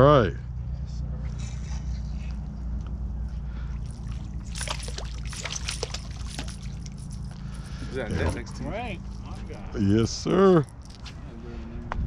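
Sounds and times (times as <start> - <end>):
steady low hum: 0.0 - 12.0
fish thrashing and splashing: 3.6 - 7.3.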